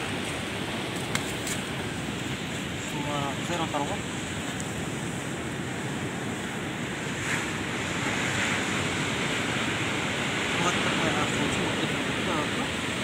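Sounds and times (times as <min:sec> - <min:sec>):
sea surf washing on shore: 0:00.0 - 0:13.0.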